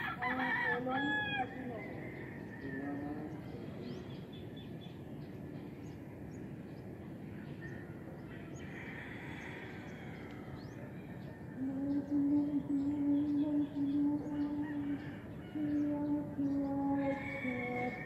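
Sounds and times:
distant rooster crowing: 0:00.0 - 0:03.6, 0:07.3 - 0:12.2, 0:13.6 - 0:18.0.

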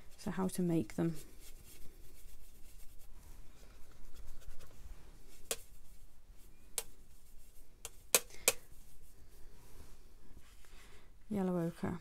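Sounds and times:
brush bristles scrubbing: 0:00.0 - 0:06.1.

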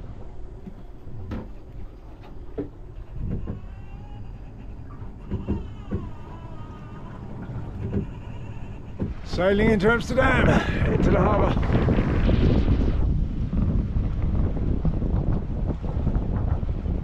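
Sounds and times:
wind rumbling on microphone: 0:00.0 - 0:17.0
faint wavering squeaks: 0:00.4 - 0:10.4
scattered knocks: 0:00.6 - 0:03.7, 0:04.6 - 0:09.5.

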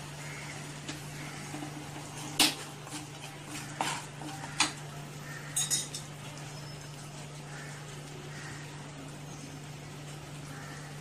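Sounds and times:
steel spoon clinking on a pan: 0:05.5 - 0:06.1.

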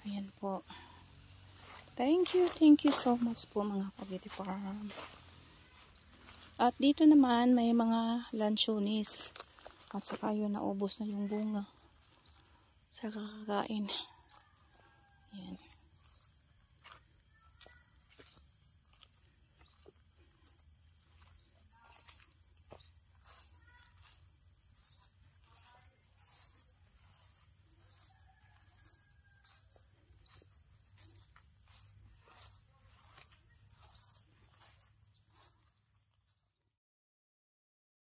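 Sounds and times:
high-pitched insect trill: 0:11.1 - 0:35.5.

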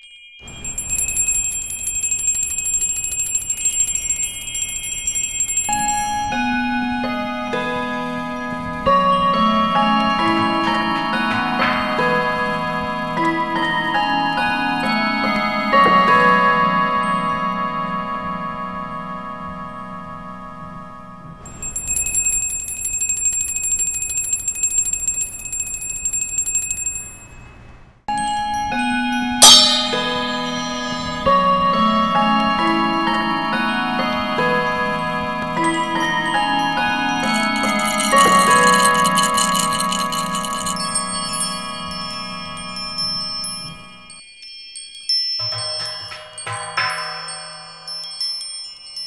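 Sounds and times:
small metal bell trilling: 0:00.0 - 0:07.2, 0:21.5 - 0:27.4, 0:28.2 - 0:31.8, 0:35.6 - 0:49.0
chiming tone: 0:00.0 - 0:20.6, 0:21.4 - 0:27.4, 0:28.1 - 0:49.0.

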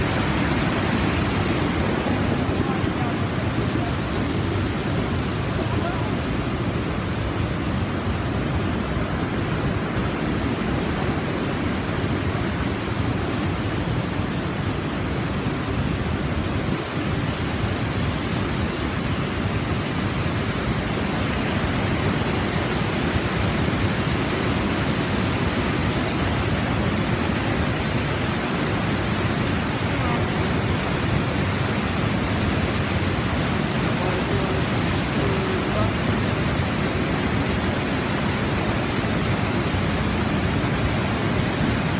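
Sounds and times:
river and waterfall rushing: 0:00.0 - 0:41.9.

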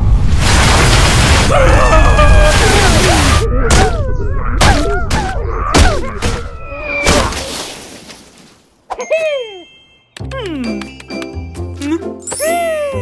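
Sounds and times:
cartoon yelps and groans: 0:01.5 - 0:07.4, 0:12.4 - 0:13.0
cartoon thuds and whacks: 0:04.6 - 0:06.4.

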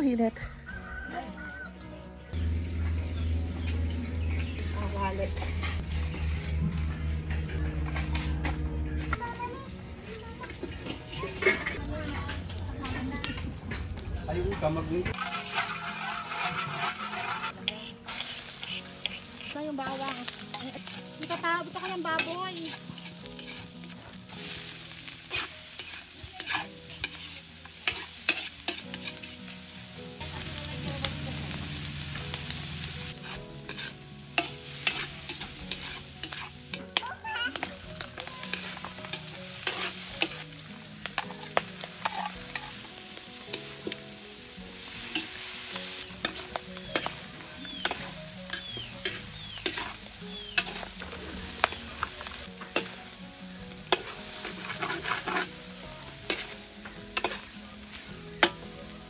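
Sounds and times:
food sizzling: 0:02.3 - 0:59.0
metal spatula scraping a wok: 0:10.6 - 0:11.8, 0:15.1 - 0:58.7.

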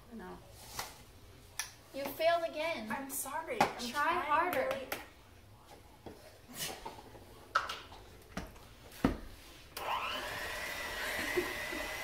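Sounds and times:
electric hand mixer whirring: 0:09.8 - 0:12.0.

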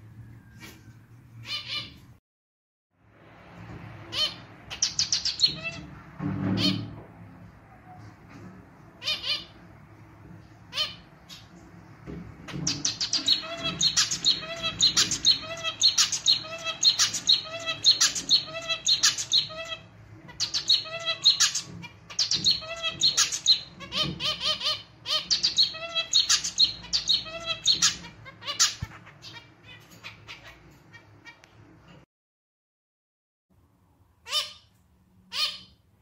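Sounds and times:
finch singing: 0:04.1 - 0:05.9, 0:12.4 - 0:31.4.

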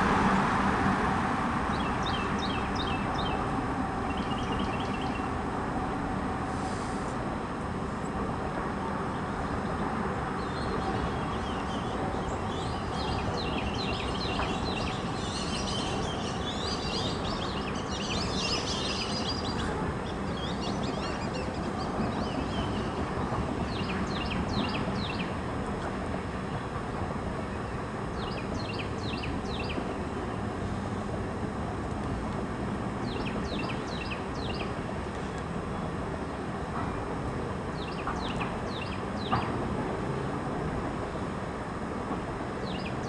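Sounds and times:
birds chirping: 0:01.7 - 0:03.4, 0:04.0 - 0:05.3, 0:09.1 - 0:25.4, 0:33.0 - 0:36.4.

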